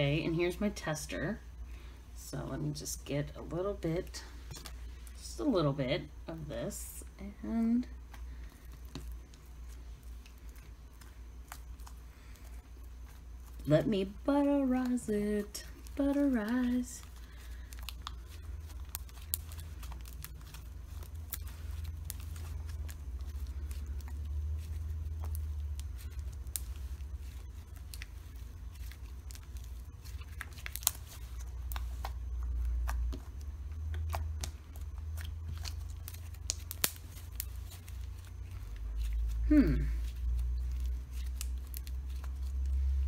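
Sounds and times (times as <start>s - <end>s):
steady low hum: 0.0s - 43.0s
hands squeezing sticky slime: 8.1s - 13.6s, 14.8s - 43.0s
slime clicks and crackles: 15.8s - 39.2s, 40.1s - 42.7s.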